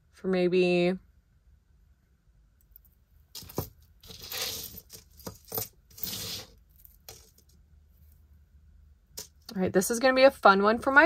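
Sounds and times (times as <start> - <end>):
rustling: 2.8 - 8.2
small metal pieces clinking: 3.4 - 7.5.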